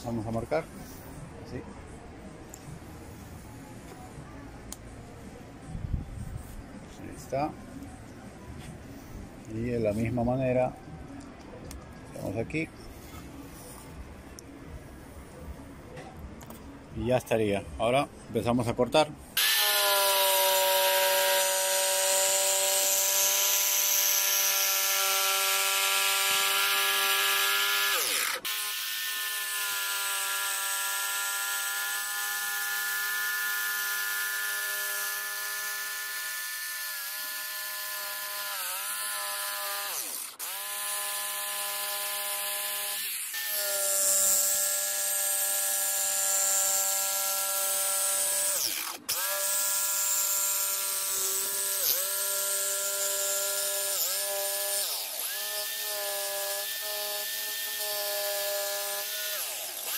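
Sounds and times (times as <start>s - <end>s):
power saw cutting wood: 19.4s - 59.9s.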